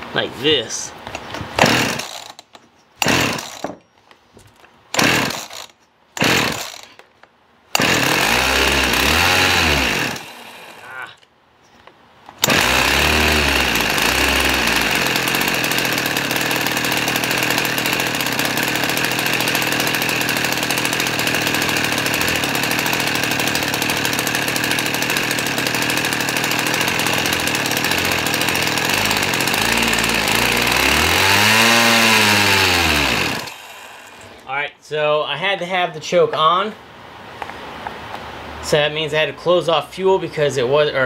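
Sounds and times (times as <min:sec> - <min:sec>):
chainsaw engine running at high revs: 0:01.6 - 0:02.4, 0:03.0 - 0:03.7, 0:05.0 - 0:06.9, 0:07.8 - 0:11.0, 0:12.4 - 0:34.4.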